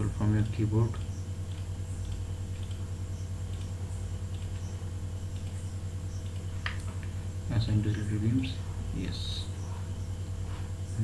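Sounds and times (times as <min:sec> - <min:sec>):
steady low hum: 0:00.0 - 0:11.0
computer mouse clicks: 0:00.4 - 0:04.7, 0:05.3 - 0:07.1.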